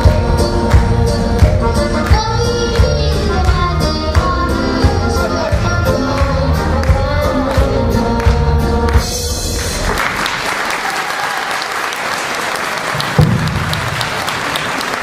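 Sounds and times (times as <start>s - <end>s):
children's choir singing: 0.0s - 9.7s
audience applause: 8.9s - 15.0s
loud thump: 13.2s - 13.9s.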